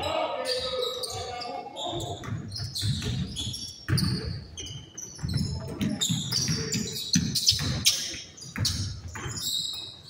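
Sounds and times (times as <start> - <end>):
basketball bouncing: 2.0 - 9.5.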